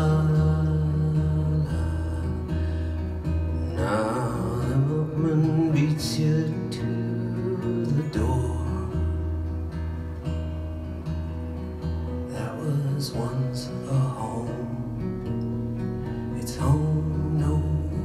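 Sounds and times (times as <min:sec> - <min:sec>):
man singing: 0:00.0 - 0:02.7, 0:03.6 - 0:09.2, 0:12.3 - 0:15.1, 0:16.3 - 0:18.0
acoustic guitar strumming: 0:00.0 - 0:18.0.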